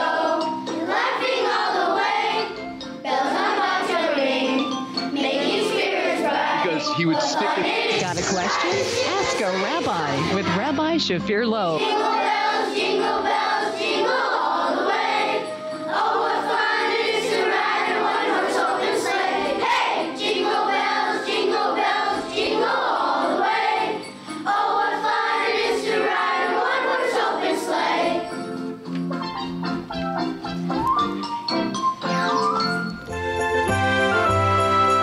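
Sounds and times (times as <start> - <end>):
children's choir singing a carol: 0.0 - 10.4, 11.8 - 28.7
musical accompaniment: 0.0 - 35.0.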